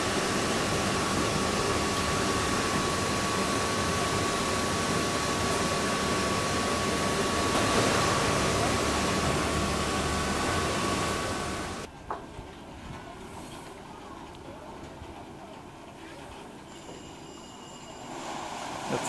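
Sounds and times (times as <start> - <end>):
steam engine running: 0.0 - 19.0.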